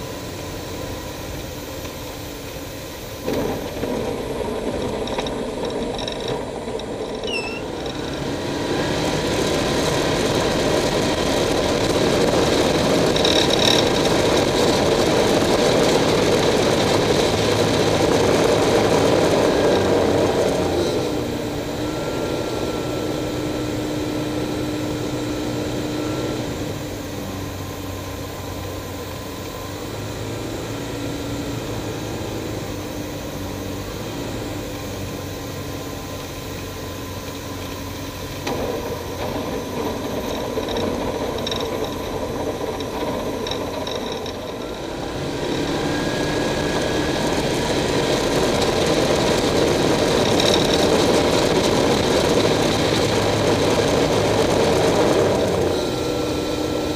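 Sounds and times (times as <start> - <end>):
thin steady whine: 0.0 - 19.6, 20.2 - 56.9
light aircraft engine: 0.0 - 56.9.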